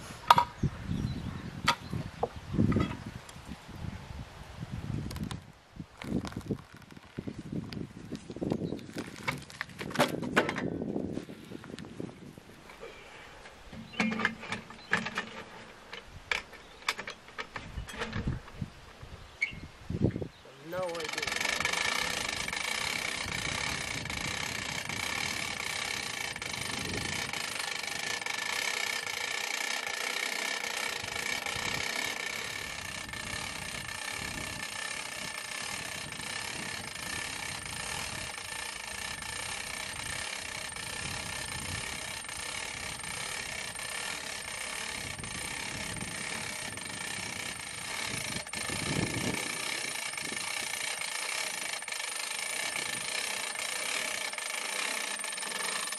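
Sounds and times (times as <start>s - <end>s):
steady mechanical hum: 0.0s - 55.9s
hand winch ratchet clicking: 13.8s - 18.5s, 20.7s - 55.9s.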